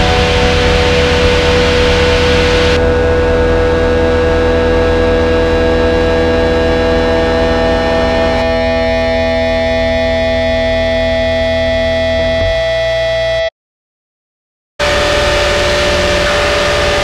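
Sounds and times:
low hum: 0:00.0 - 0:13.4
guitar amplifier feedback drone: 0:00.0 - 0:13.5, 0:14.8 - 0:17.0.

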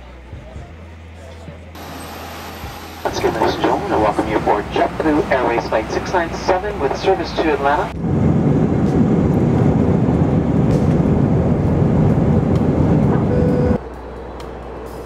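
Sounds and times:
cabin hum: 0:01.8 - 0:08.2
jet engines rumbling on takeoff: 0:01.8 - 0:15.0.

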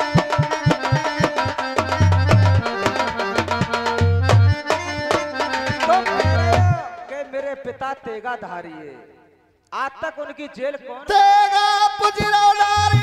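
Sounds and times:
hand drum rhythm: 0:00.0 - 0:06.8
held keyboard notes: 0:00.0 - 0:06.9.

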